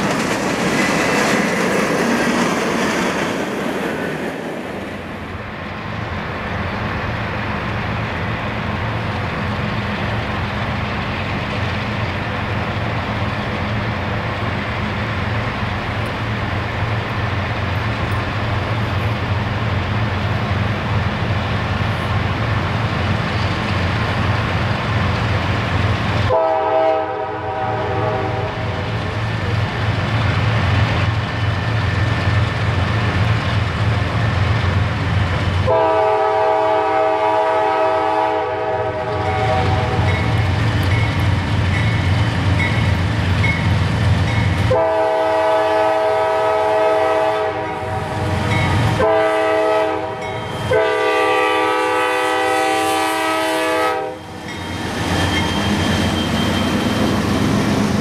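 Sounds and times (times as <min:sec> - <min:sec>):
train air horn blasts: 0:26.2 - 0:28.8, 0:35.6 - 0:40.3, 0:44.6 - 0:54.4
locomotive engine rumbling: 0:27.4 - 0:58.0.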